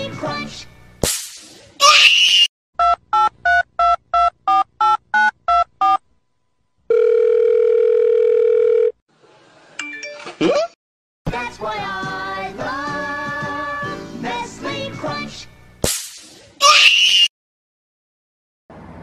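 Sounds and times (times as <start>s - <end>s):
telephone ringing tone: 6.9s - 9.0s.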